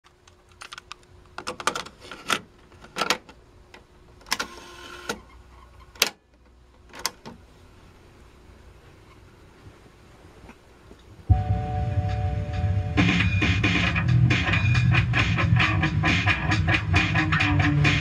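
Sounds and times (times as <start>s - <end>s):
tape transport whir: 1.6s - 7.4s
cassette deck plastic clicks: 6.0s - 7.4s.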